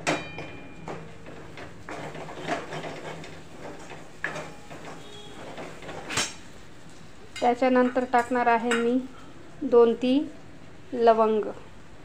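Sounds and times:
metal spoon scraping a metal pan: 1.9 - 6.4.

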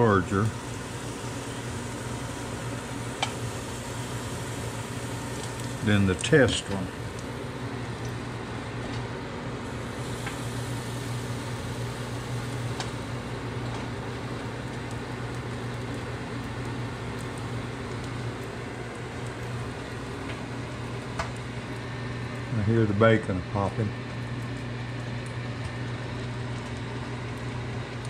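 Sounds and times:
microwave oven humming: 0.0 - 28.0
bacon popping: 0.4 - 5.8.

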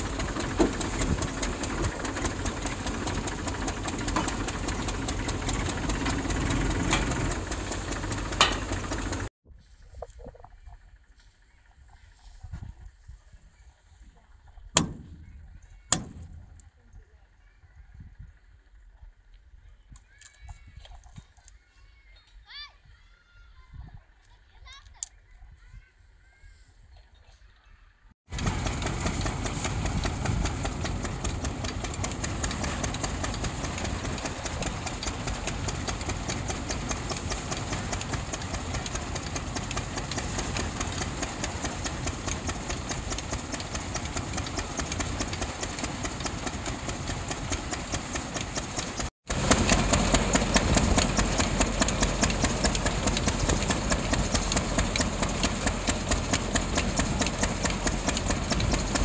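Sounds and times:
engine chugging: 0.0 - 9.3, 10.2 - 19.6, 28.3 - 59.0
threshing machine rattling: 0.0 - 9.3, 14.8 - 16.6, 28.3 - 59.0.

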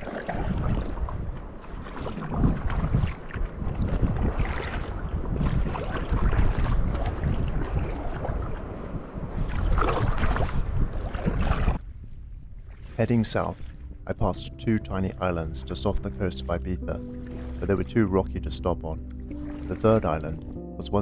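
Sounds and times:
paddle strokes splashing water: 0.0 - 14.2, 15.2 - 21.0
wind buffeting microphone: 0.0 - 14.3.

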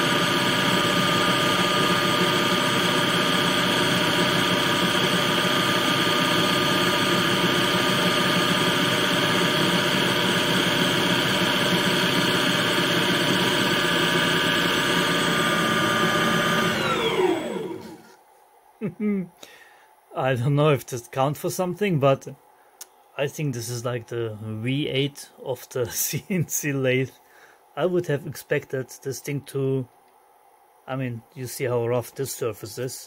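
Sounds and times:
lathe motor whining: 0.0 - 18.1.

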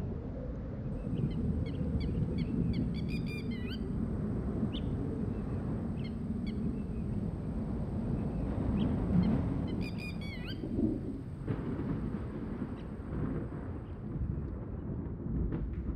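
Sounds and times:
wind rumbling: 0.0 - 15.9
birds chirping: 1.0 - 4.0, 4.7 - 11.2.

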